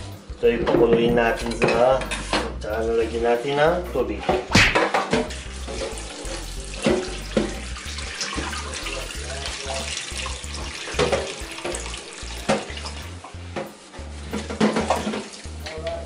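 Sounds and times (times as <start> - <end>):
water pouring into a metal pot: 5.2 - 13.3, 14.5 - 16.0.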